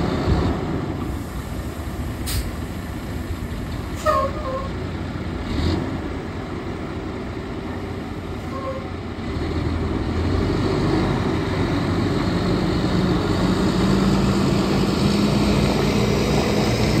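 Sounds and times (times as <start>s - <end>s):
dump truck diesel engine pulling away: 0.0s - 17.0s
short hiss: 1.1s - 3.2s.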